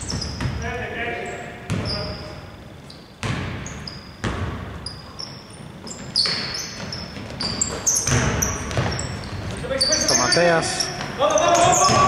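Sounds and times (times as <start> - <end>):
basketball bouncing on hardwood: 0.0 - 0.6, 1.7 - 2.0, 3.2 - 4.7, 6.0 - 9.6, 11.0 - 12.0
sneakers squeaking on floor: 0.0 - 12.0.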